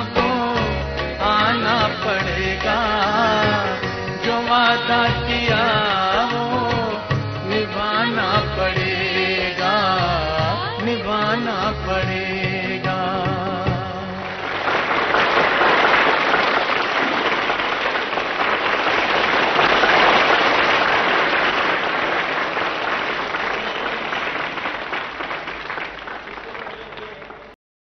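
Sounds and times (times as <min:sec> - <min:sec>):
audience applauding: 0:14.2 - 0:27.6.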